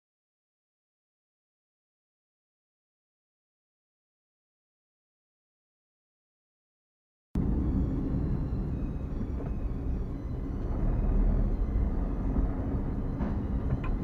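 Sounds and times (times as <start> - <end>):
car engine and road rumble: 7.4 - 14.0.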